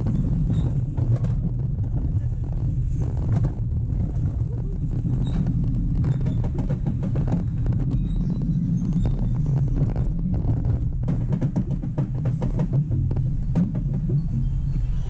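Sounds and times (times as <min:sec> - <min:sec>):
roller coaster rumbling on track: 0:00.0 - 0:15.0
wheels clicking rattle: 0:00.0 - 0:15.0.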